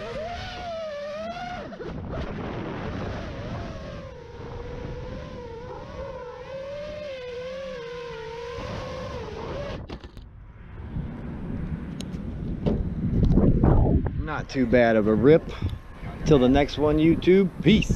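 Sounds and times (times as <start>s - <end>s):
quadcopter motors whining: 0.0s - 10.2s.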